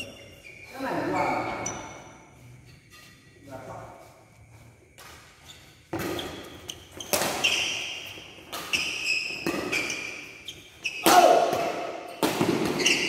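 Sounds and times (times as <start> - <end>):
shoes squeaking on floor: 0.0 - 13.0
rackets hitting shuttlecock: 5.9 - 13.0.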